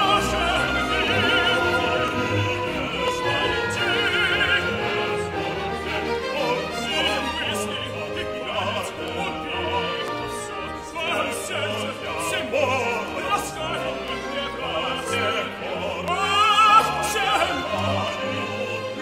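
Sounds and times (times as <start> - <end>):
man singing opera: 0.0 - 19.0
symphony orchestra: 0.0 - 19.0.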